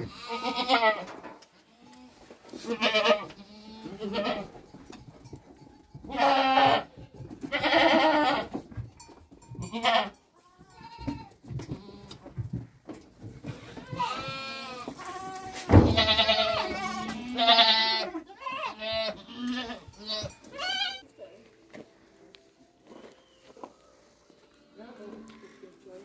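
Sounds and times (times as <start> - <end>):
sheep bleating: 0.0 - 1.1, 2.6 - 4.5, 6.1 - 6.9, 7.5 - 8.5, 9.6 - 12.1, 13.8 - 21.0.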